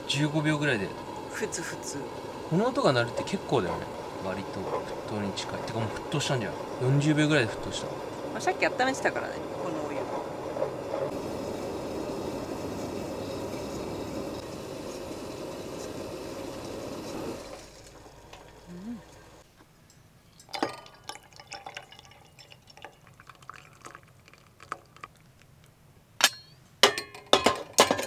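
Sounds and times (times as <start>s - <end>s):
hot water pouring into a tumbler: 0.0s - 19.3s, 20.4s - 25.5s
gas stove burner hissing: 0.0s - 19.5s
water dripping: 19.9s - 25.8s
sharp metal clinks: 26.2s - 27.1s.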